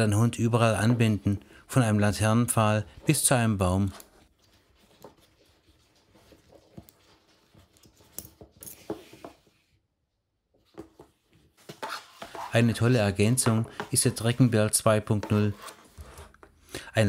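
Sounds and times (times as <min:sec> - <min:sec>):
leash webbing through buckle: 0:06.6 - 0:08.9.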